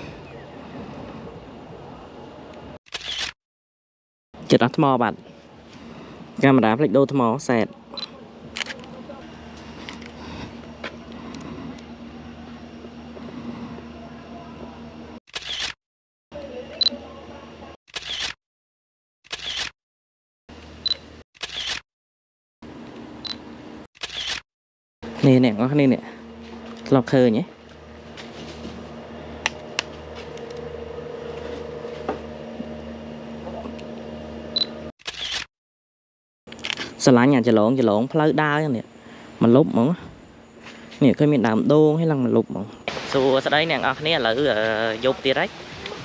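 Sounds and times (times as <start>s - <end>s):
camera shutter clicks: 2.9s - 3.4s, 15.3s - 15.8s, 17.9s - 18.4s, 19.3s - 19.7s, 21.4s - 21.8s, 24.0s - 24.4s, 35.0s - 35.5s
low background hum: 4.4s - 15.2s, 25.0s - 34.9s, 36.5s - 46.0s.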